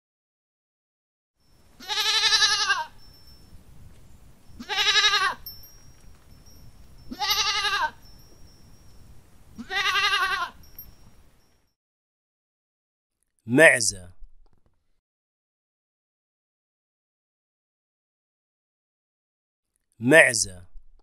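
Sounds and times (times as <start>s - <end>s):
goat bleating: 1.8s - 3.0s, 4.6s - 5.4s, 7.1s - 8.0s, 9.6s - 10.6s.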